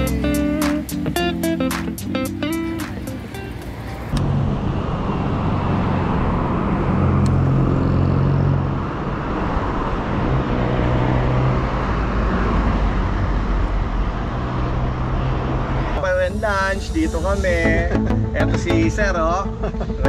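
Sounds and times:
road noise rushing: 0.0s - 18.5s
vehicle engines humming: 0.0s - 20.0s.

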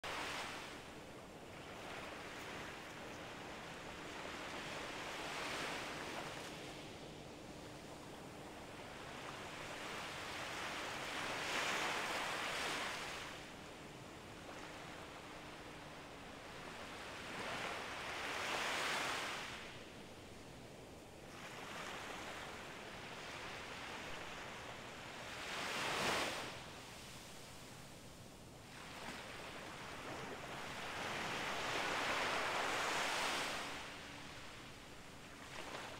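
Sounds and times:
small waves breaking on beach: 0.0s - 19.9s, 21.2s - 35.9s.

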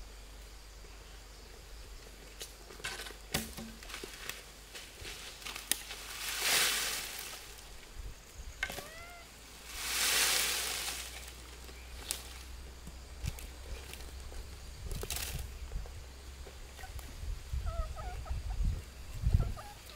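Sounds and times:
contents rustling onto dry sticks: 2.3s - 7.9s, 8.6s - 15.5s.

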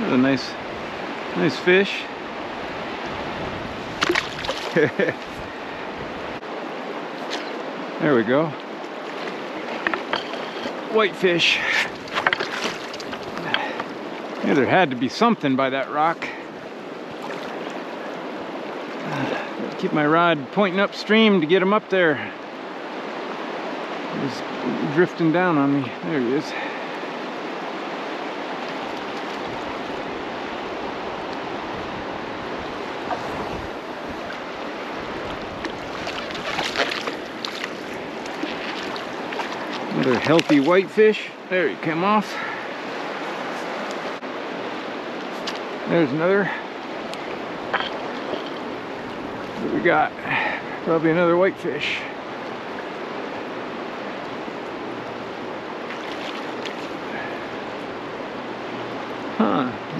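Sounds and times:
river running over stones: 0.0s - 59.9s
wind buffeting microphone: 2.1s - 6.5s, 27.0s - 40.8s
splashy crackles: 4.0s - 5.1s, 11.6s - 13.8s, 35.6s - 41.3s, 55.9s - 57.3s.

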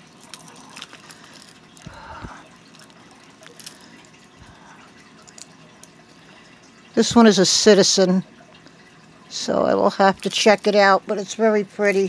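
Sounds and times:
watch bracelet clicking and clinking: 0.2s - 2.0s, 2.6s - 4.2s, 5.2s - 6.0s.

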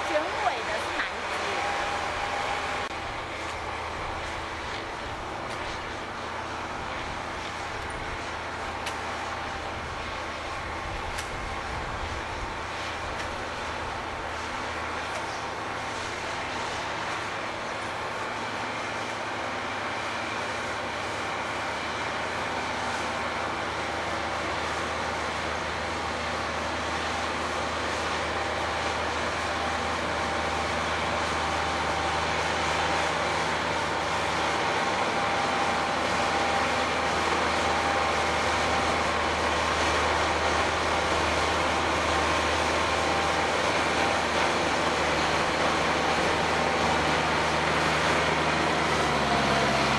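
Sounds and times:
tractor diesel engine running: 0.0s - 49.9s.

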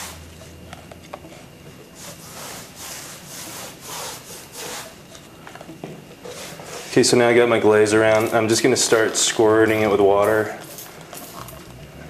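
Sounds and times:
paintbrush scrubbing on plaster wall: 0.0s - 0.3s, 1.2s - 5.3s, 6.2s - 11.5s.

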